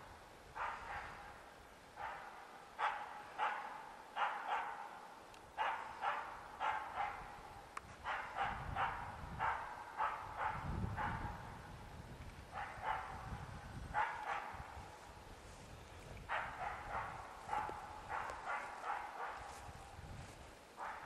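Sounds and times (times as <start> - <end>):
dog barking sharply: 2.0 - 4.9, 5.6 - 7.3, 8.1 - 11.2, 14.0 - 14.6, 16.3 - 19.6.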